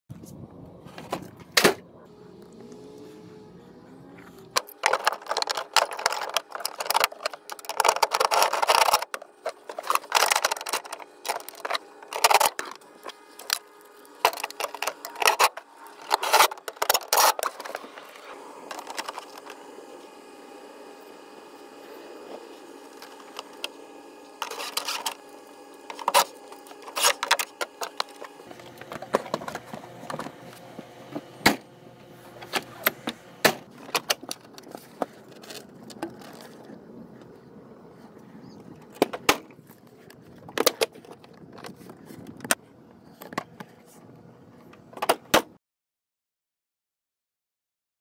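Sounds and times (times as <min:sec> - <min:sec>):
steady background hum: 0:00.1 - 0:45.6.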